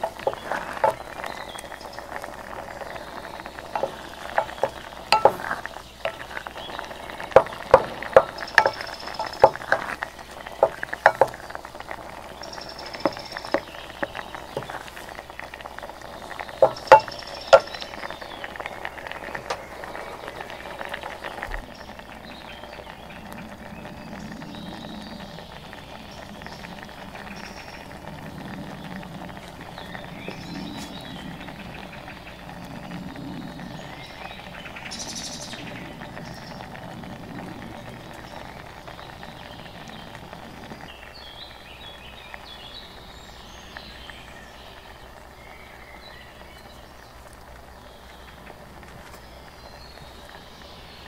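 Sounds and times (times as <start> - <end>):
birds chirping and calling: 0.0 - 27.9
outdoor background noise: 0.0 - 51.0.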